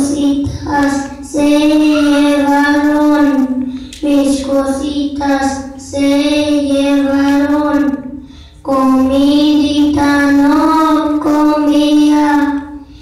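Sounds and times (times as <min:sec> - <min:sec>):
children singing: 0:00.7 - 0:03.4.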